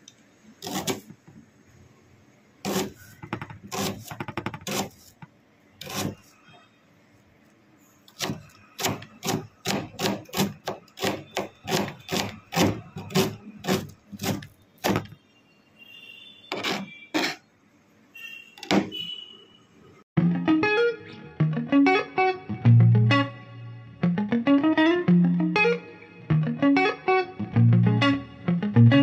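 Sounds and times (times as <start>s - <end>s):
knife chopping onion on cutting board: 0.6s - 1.2s, 2.6s - 5.2s, 5.8s - 6.2s, 8.1s - 15.1s.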